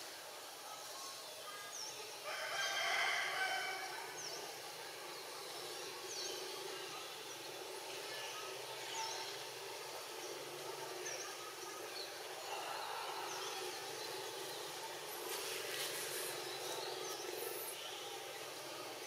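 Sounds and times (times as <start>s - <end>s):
outdoor background noise: 0.0s - 19.0s
rooster crowing: 2.2s - 4.0s.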